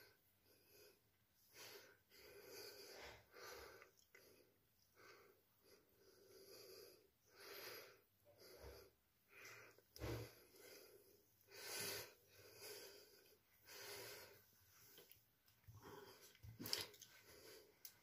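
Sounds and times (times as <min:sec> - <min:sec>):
faint breathing: 0:00.0 - 0:16.4.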